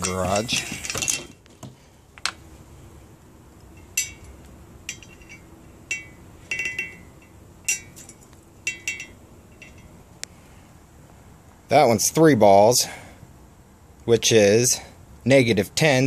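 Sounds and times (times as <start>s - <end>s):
glassy clinks: 3.7s - 10.0s.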